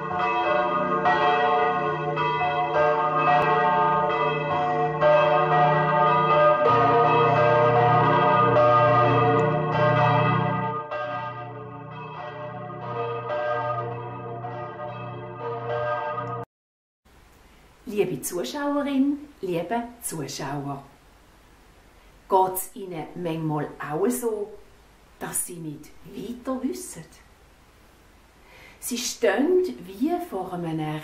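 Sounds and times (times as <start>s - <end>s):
church bells ringing: 0.0s - 16.5s.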